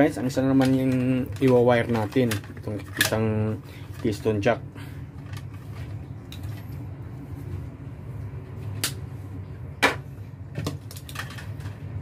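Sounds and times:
steady low hum: 0.0 - 12.0
small tools clicking and knocking: 0.5 - 3.3.

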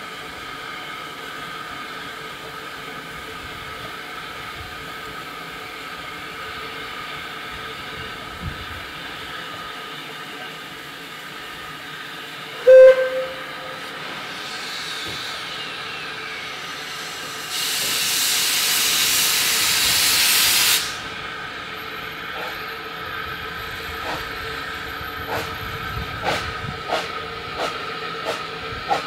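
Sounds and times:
steam venting rush: 0.0 - 29.0
steam locomotive whistle toot: 12.6 - 14.0.

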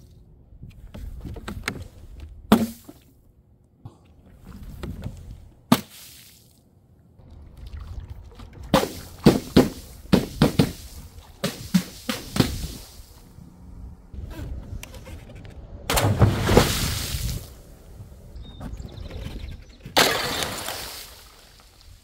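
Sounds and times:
water balloon bursting splash: 8.7 - 13.2, 15.9 - 17.5
balloons slapping on steel sheet: 8.8 - 12.8.

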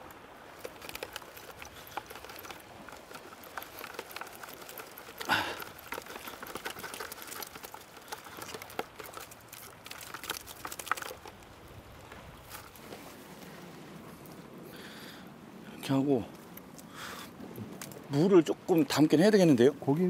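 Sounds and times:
net trap rustling and clicking: 0.5 - 11.5.

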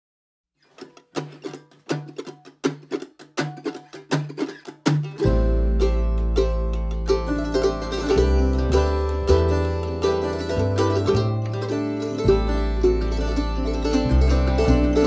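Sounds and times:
mandolin picking: 0.6 - 15.0
double bass notes: 5.2 - 15.0.

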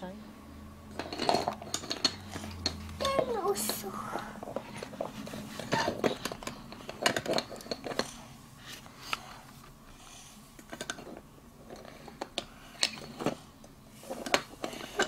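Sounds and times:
plastic toys clicking and tapping: 0.9 - 8.2.

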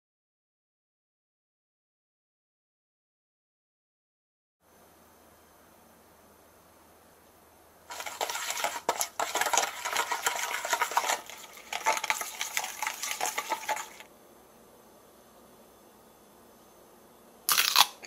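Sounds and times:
utensil scraping a bowl: 7.9 - 14.1.

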